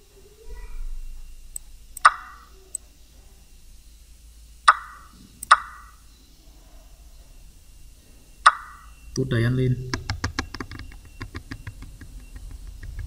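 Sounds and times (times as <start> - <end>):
faint high ticks: 4.7 - 5.8.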